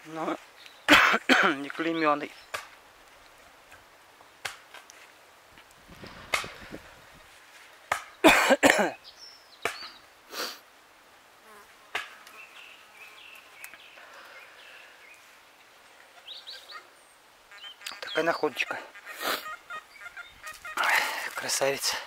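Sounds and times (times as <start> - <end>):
person coughing: 0.9 - 1.6, 8.2 - 9.0.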